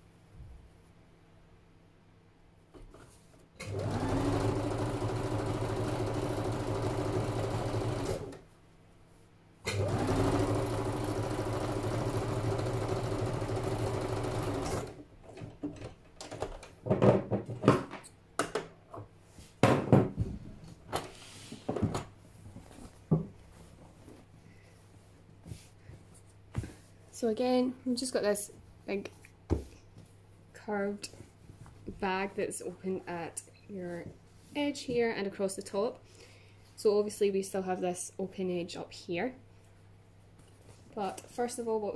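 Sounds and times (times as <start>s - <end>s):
sewing machine running: 3.6s - 8.4s, 9.7s - 15.0s.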